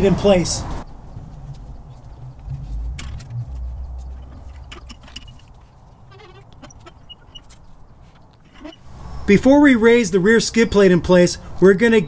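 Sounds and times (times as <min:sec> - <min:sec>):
jack casters rumbling on concrete: 0:01.2 - 0:08.8
brief squeak: 0:03.3 - 0:05.5, 0:06.1 - 0:07.6, 0:08.5 - 0:09.2.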